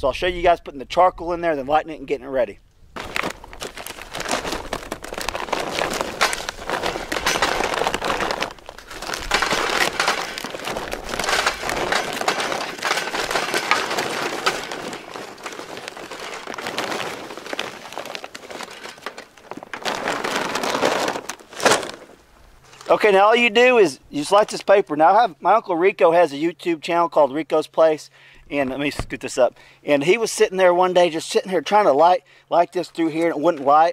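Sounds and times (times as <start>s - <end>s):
briquettes clattering into metal: 3.0s - 22.9s
paper bag rustling: 3.0s - 23.3s.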